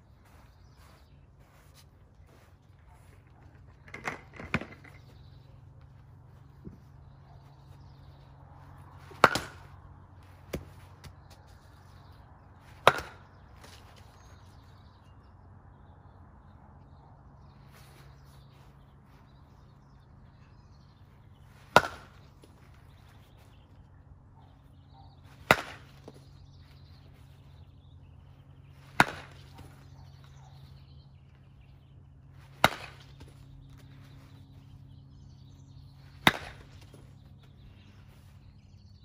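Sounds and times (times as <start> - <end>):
baseball bat hitting balls: 3.6 - 5.5, 7.5 - 14.4, 21.3 - 23.8, 24.5 - 35.2, 36.0 - 38.4.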